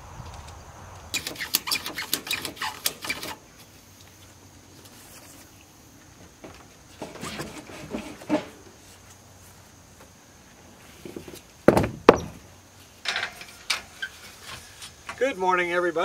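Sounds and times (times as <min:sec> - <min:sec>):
ratchet strap loud clacks: 0:01.1 - 0:03.4.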